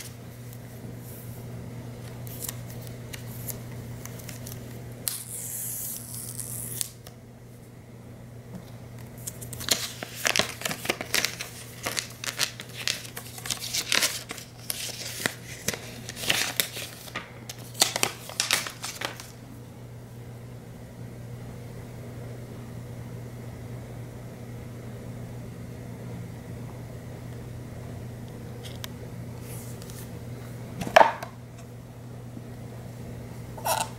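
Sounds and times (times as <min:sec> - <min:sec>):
paper tear strip ripping: 0:04.0 - 0:07.1, 0:09.2 - 0:19.3
packaging crackles and scrapes: 0:09.2 - 0:19.3.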